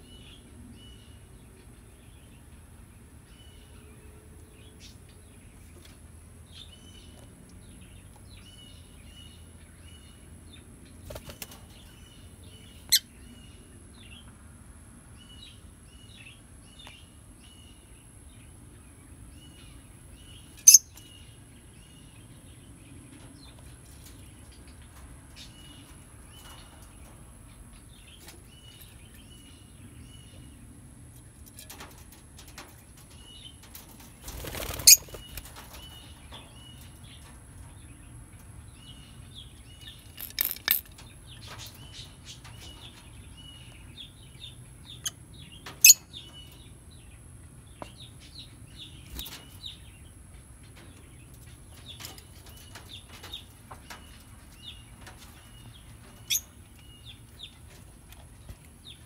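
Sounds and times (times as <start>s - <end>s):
wings fluttering: 11.0s - 11.7s, 31.6s - 36.3s
lovebirds chirping: 15.1s - 59.0s.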